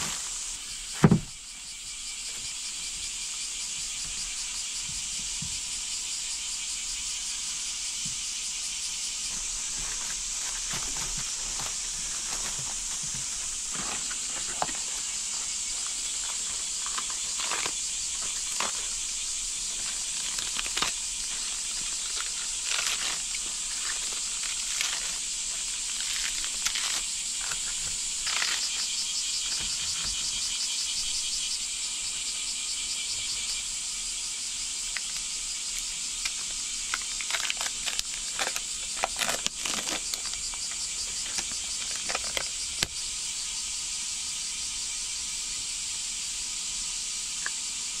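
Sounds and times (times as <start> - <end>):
high insect drone: 0.0 - 48.0
plastic wrap crinkling: 9.5 - 28.9, 36.3 - 42.9
lettuce leaves tearing: 15.8 - 19.0, 19.7 - 28.9, 36.3 - 42.9.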